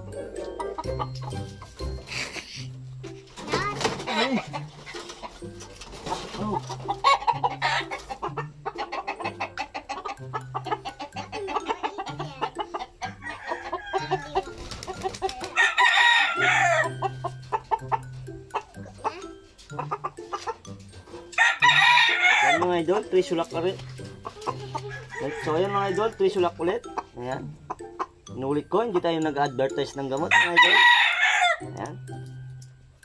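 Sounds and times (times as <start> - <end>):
chickens clucking: 0.0 - 32.0
rooster crowing: 13.2 - 14.4, 15.6 - 16.9, 21.4 - 22.6, 24.9 - 26.1, 30.3 - 31.6.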